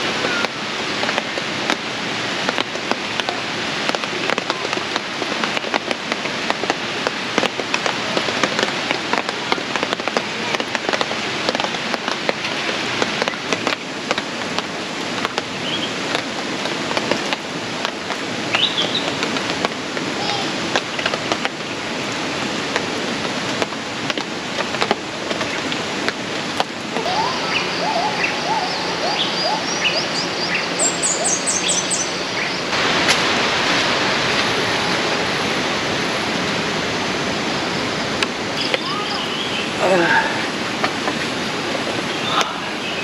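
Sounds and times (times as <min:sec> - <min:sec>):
steady rushing noise: 0:00.0 - 0:43.0
bird chirps: 0:18.6 - 0:19.1, 0:27.1 - 0:32.7.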